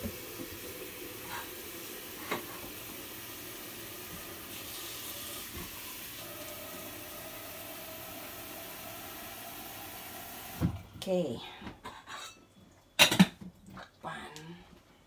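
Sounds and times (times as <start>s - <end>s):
tap water running into kettle: 0.0s - 10.8s.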